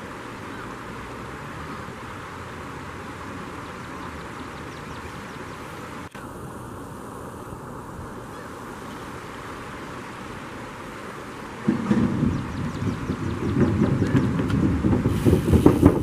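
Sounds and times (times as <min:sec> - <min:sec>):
river water flowing: 0:00.0 - 0:16.0
faint high bird calls: 0:00.4 - 0:00.8, 0:07.4 - 0:09.0.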